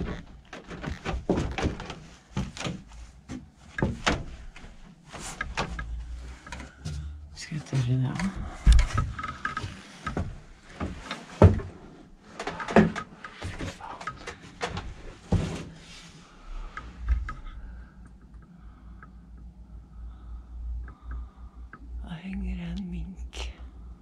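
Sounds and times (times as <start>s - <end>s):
footsteps on wooden floorboards: 0.0s - 6.1s.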